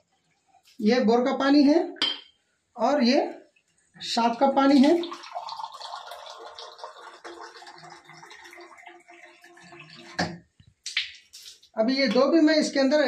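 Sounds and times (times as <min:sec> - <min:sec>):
water pouring into a glass: 0:04.2 - 0:10.4.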